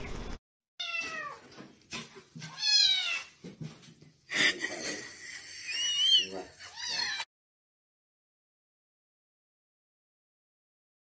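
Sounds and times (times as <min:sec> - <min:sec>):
kitten meowing: 0:05.8 - 0:07.2.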